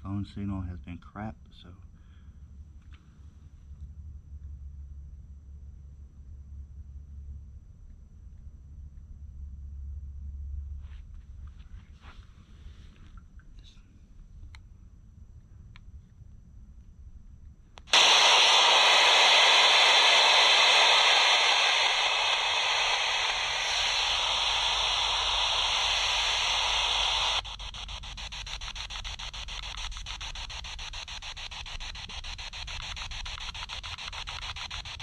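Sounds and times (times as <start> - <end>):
radio static hiss: 17.8 - 35.0
static chopping rapidly: 17.9 - 35.0.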